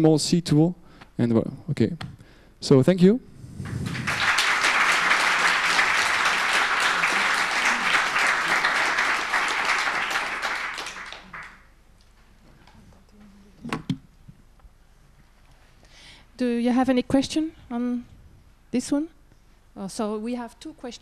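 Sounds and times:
audience applauding: 3.6 - 11.7.

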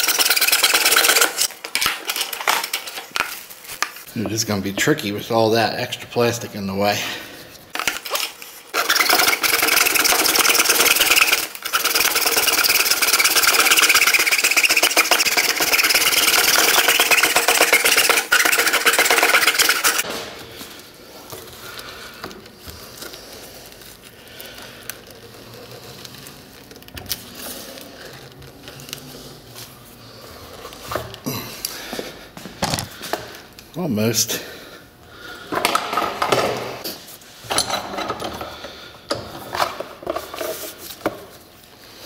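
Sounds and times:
hacksaw cutting hard plastic: 0.0 - 2.8, 7.8 - 20.1.

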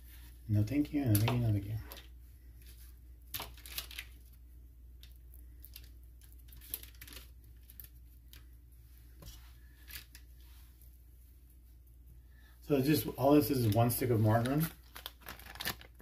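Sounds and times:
paper wrapper rustling and crinkling: 1.1 - 4.4, 5.0 - 8.5, 13.2 - 16.0.

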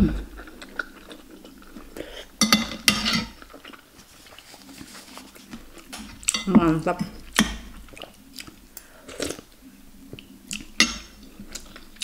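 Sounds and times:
person chewing food: 0.0 - 6.5, 7.2 - 12.0
cutlery clinking on plate: 2.4 - 3.4.

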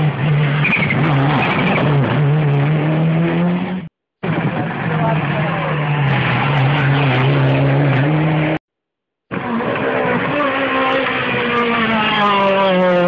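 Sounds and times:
rally car engines revving: 0.0 - 8.6, 9.3 - 13.0.

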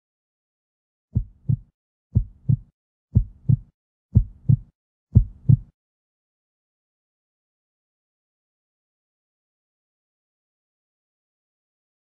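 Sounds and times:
heartbeat thumps: 1.1 - 5.7.

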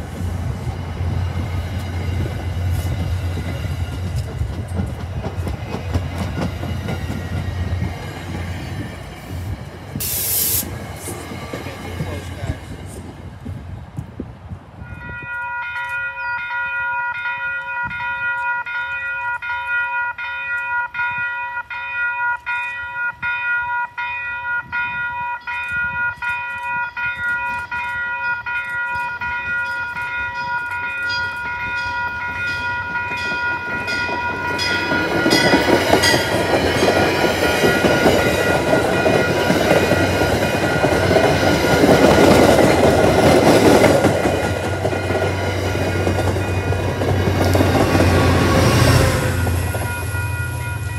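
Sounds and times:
train wheels rumbling over rails: 0.0 - 15.0, 28.6 - 50.9
crossing warning bell ringing: 14.8 - 50.9.

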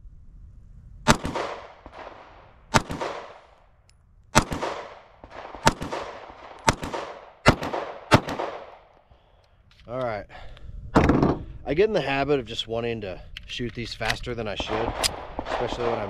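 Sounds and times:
pistol shots with echo: 1.1 - 3.4, 4.3 - 8.9, 14.5 - 16.0.

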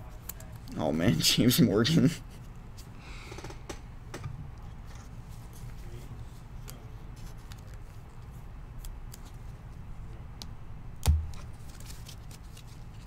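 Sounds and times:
low steady hum: 0.0 - 13.0
sharp thump: 11.0 - 11.4
cards clicking and rustling: 11.1 - 13.0.

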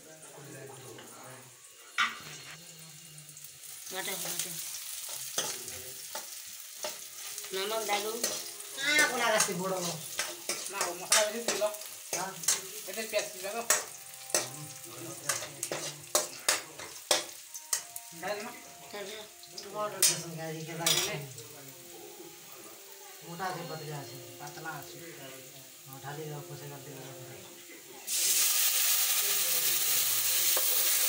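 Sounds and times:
onions sizzling in oil: 0.0 - 31.0
metal spatula clinking on pan: 5.1 - 7.4, 8.2 - 17.9, 20.8 - 21.2.

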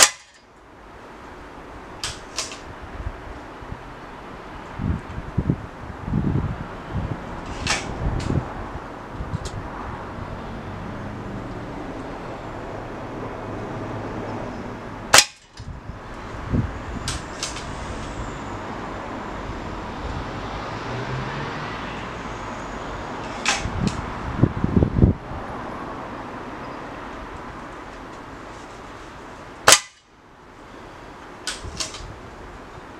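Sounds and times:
rifle handling clicks and clunks: 2.0 - 2.6, 31.4 - 32.1.

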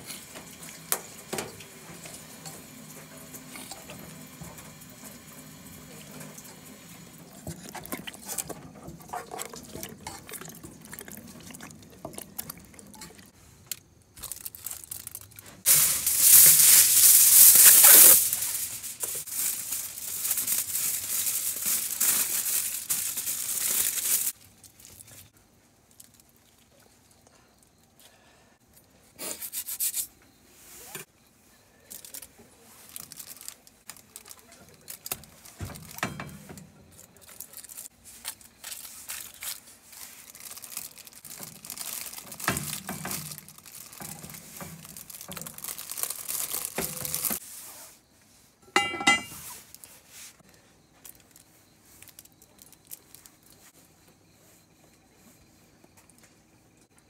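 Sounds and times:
aluminium foil crinkling: 0.0 - 26.9, 31.8 - 47.4, 50.9 - 53.7.

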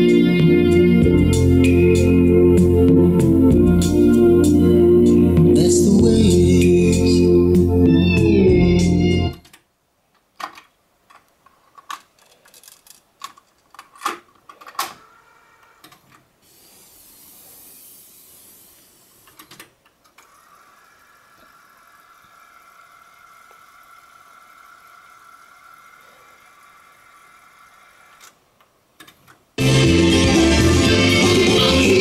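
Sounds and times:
music from cassette deck: 0.0 - 9.4, 29.6 - 32.0
clicks and knocks: 9.4 - 15.0
brief hiss: 16.4 - 19.5
tape rewinding whir: 19.3 - 28.4.

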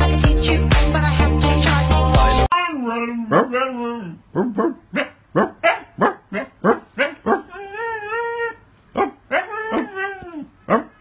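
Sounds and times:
dog howling: 2.7 - 11.0
dog barking: 4.4 - 7.6, 8.9 - 9.8, 10.7 - 11.0.

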